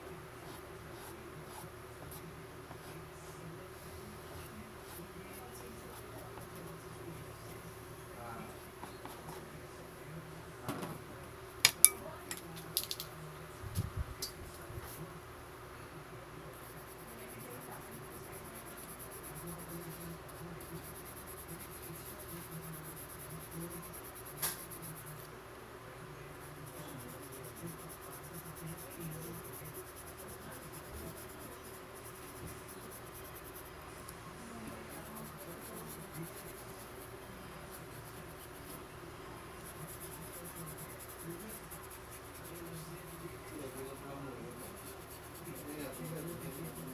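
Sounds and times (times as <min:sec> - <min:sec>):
brush bristles scratching paper: 0:00.4 - 0:02.2, 0:16.6 - 0:25.3, 0:26.4 - 0:33.8, 0:34.6 - 0:38.9, 0:39.6 - 0:46.9.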